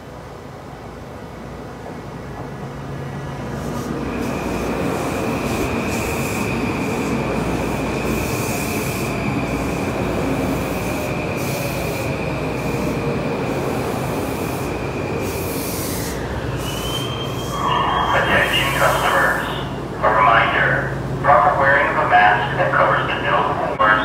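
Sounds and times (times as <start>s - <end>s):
rumble of train cars: 0.0s - 24.0s
train brakes squealing: 14.3s - 19.8s.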